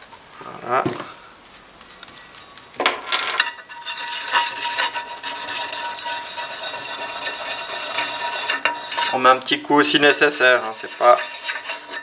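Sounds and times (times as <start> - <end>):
sharpening stone scraping metal: 3.4 - 12.0.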